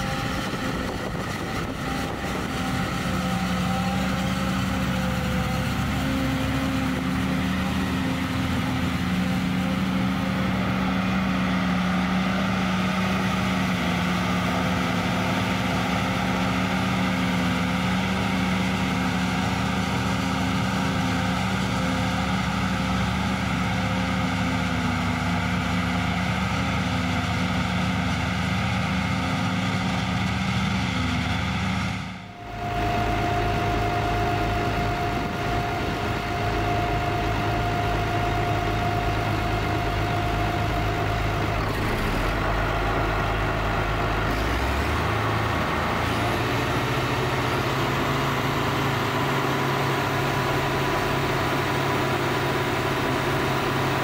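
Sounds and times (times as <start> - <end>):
forage harvester engine drone: 0.0 - 54.0
truck engine: 0.0 - 54.0
rushing noise of chopped crop: 41.6 - 42.7.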